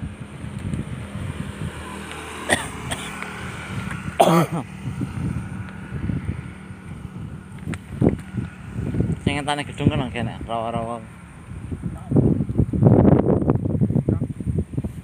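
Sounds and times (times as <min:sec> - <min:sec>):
wind on microphone: 0:00.0 - 0:15.0
person coughing: 0:02.5 - 0:03.2, 0:04.2 - 0:04.7.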